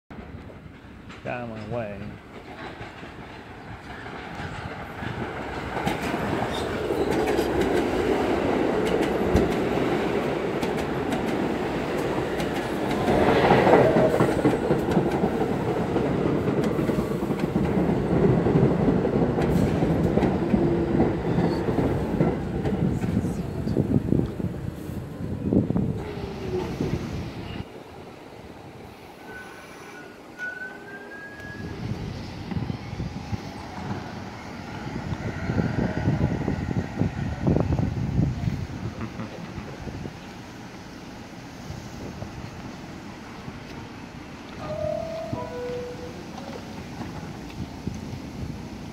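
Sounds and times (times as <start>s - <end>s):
train wheels clattering on rails: 0.1s - 24.5s, 42.2s - 48.9s
subway train rumbling: 0.1s - 48.9s
thin high squeal: 29.2s - 31.8s.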